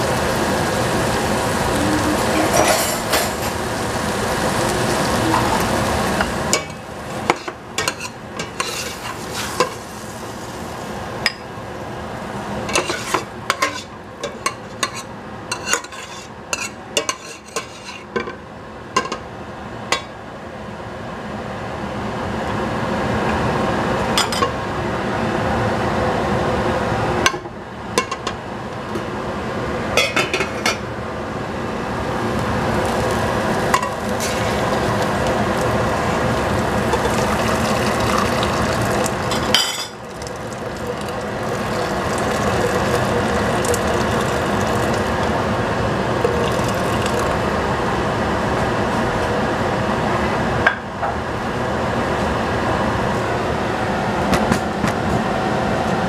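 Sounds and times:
metal cookware clinking: 2.3 - 3.5
water pouring into a pot: 32.7 - 45.5, 46.2 - 47.5.

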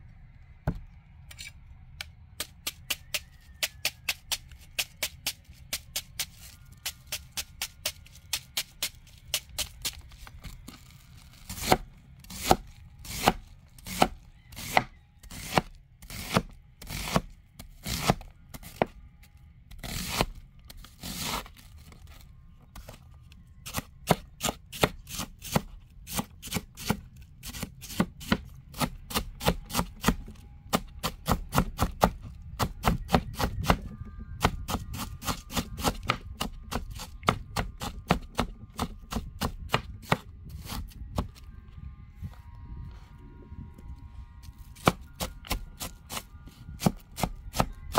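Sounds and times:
knife chopping on wooden board: 11.5 - 17.2, 23.7 - 33.8, 44.8 - 46.2.

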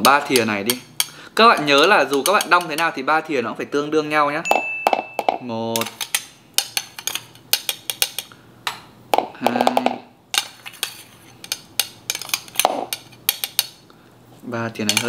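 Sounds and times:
metal spoon clinking on glass: 4.5 - 6.0.

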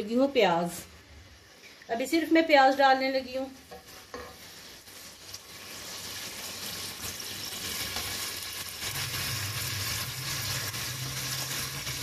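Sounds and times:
seeds sizzling in hot oil: 0.2 - 12.0.

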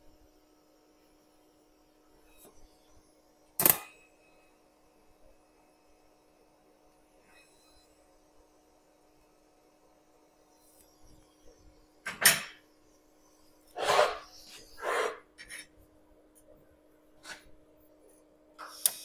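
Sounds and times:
faint steady hum: 0.0 - 19.0
welding arc crack: 3.6 - 3.9.

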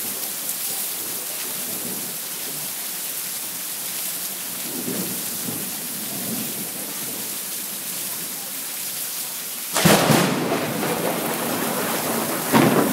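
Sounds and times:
heavy rain falling: 0.0 - 12.9
thunder crack and rumble: 9.8 - 12.9.

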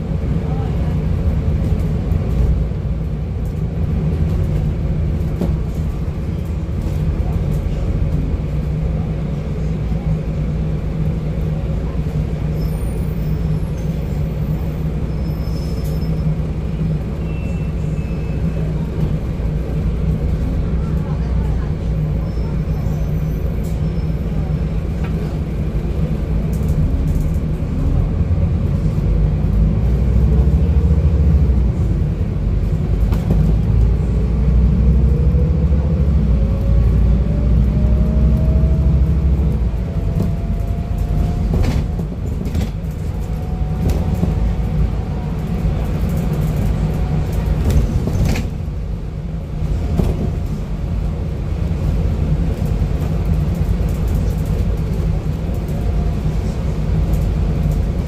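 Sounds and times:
bus engine and road rumble: 0.0 - 58.0
rising engine whine: 33.7 - 48.0.

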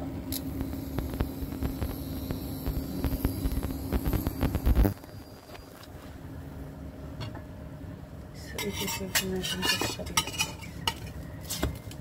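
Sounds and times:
steady frying hiss: 0.0 - 6.1.

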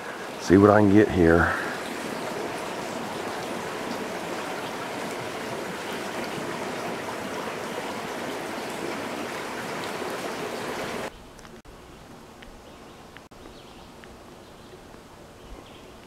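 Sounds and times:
creek water running over rocks: 0.0 - 11.1.

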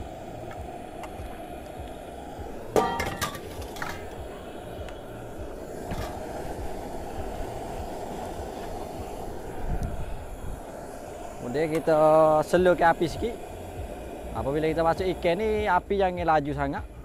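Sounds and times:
cooking flame roaring: 0.0 - 17.0
loud metal clank: 2.8 - 4.0.

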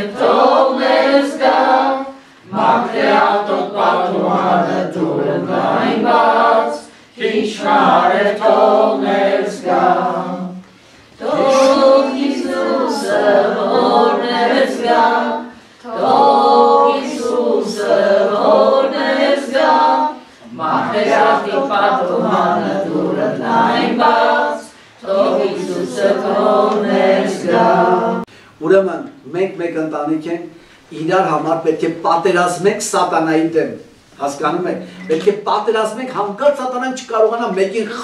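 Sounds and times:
group singing a hymn: 0.0 - 28.4, 34.4 - 35.7.

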